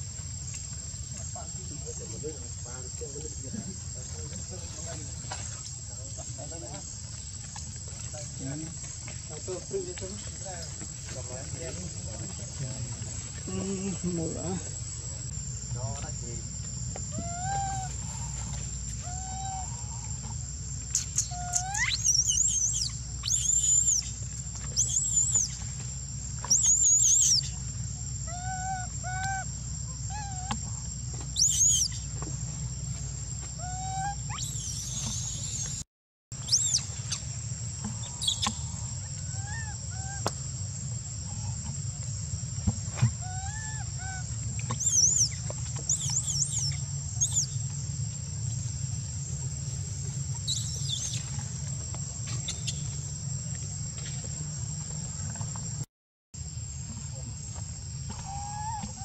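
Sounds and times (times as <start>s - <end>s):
high insect drone: 0.0s - 35.8s, 36.4s - 59.0s
softer lower monkey calls: 17.1s - 20.3s, 20.9s - 24.2s, 24.8s - 25.6s, 26.5s - 27.6s, 28.3s - 30.5s, 31.4s - 32.1s, 33.6s - 35.7s, 38.0s - 40.3s, 43.2s - 47.6s, 58.2s - 59.0s
baby monkey screaming: 17.2s - 18.0s, 19.0s - 19.8s, 21.0s - 24.1s, 24.8s - 25.6s, 26.5s - 27.5s, 28.3s - 29.5s, 30.1s - 30.5s, 31.4s - 32.1s, 33.6s - 35.7s, 36.4s - 37.2s, 39.2s - 40.3s, 43.2s - 47.5s, 58.2s - 59.0s.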